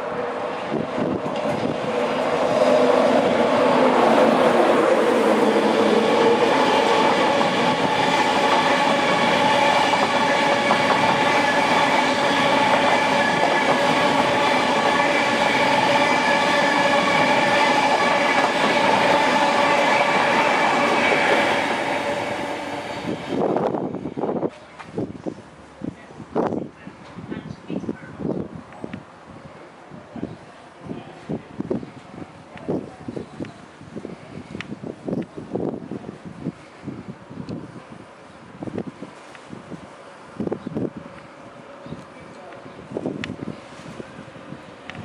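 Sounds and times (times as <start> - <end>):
steam train passing at speed: 0.0 - 27.3.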